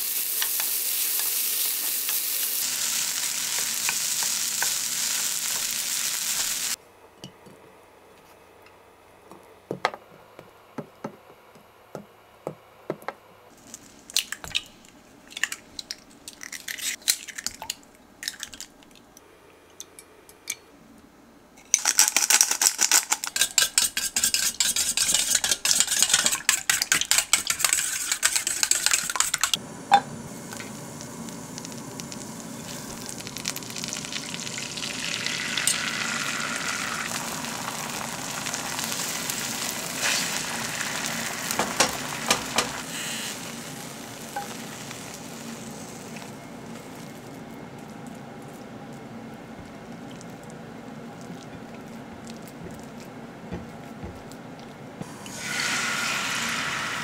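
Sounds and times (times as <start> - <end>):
egg sizzling in a frying pan: 0.0 - 6.8, 23.6 - 47.3, 55.0 - 57.0
eggs beaten in a metal bowl: 23.0 - 29.6.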